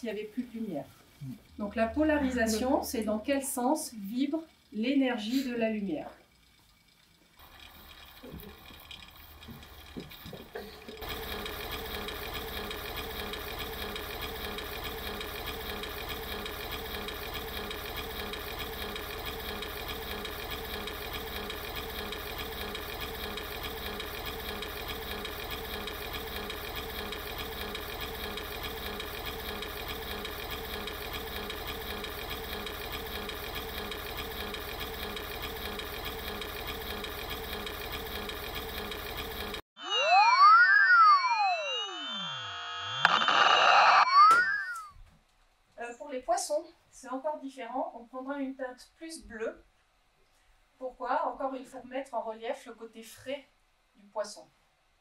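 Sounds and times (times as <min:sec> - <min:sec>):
machine-like whirring drone: 0:11.0 - 0:39.6, 0:41.3 - 0:44.0.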